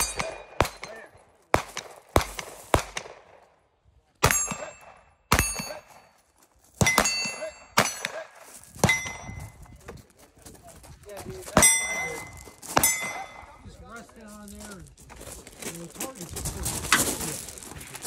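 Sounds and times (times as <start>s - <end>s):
bullet clanging on steel target: 0.0s - 1.3s, 4.2s - 6.2s, 6.8s - 9.6s, 11.6s - 13.6s
pistol shots: 0.0s - 3.6s, 4.2s - 6.1s, 6.8s - 9.3s, 11.6s - 13.6s.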